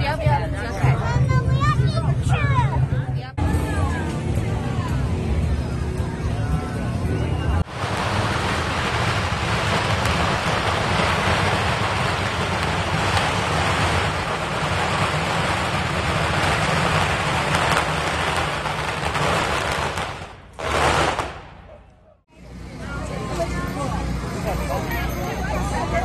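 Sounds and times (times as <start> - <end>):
firecrackers crackling: 7.6 - 22.5.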